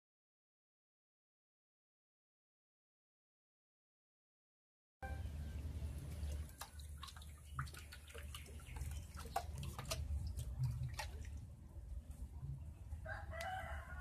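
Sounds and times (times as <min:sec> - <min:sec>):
low steady hum: 0:05.0 - 0:14.0
small clicks and drip-like ticks: 0:06.0 - 0:11.4.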